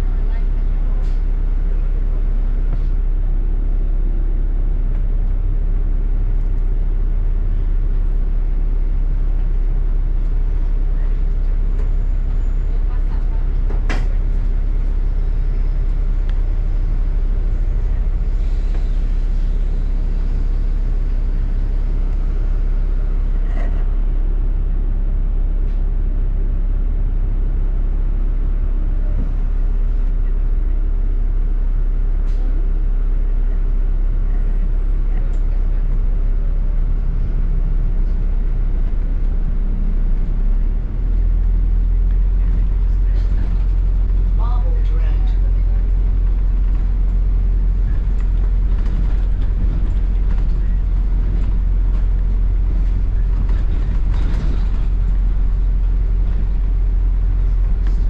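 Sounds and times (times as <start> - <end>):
bus engine and road rumble: 0.0 - 58.0.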